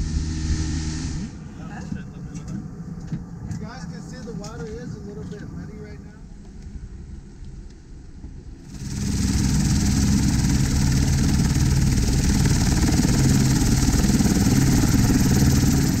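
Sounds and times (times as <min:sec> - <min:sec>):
helicopter engine hiss: 0:00.0 - 0:02.2, 0:08.6 - 0:16.0
rotor blades beating: 0:08.5 - 0:16.0.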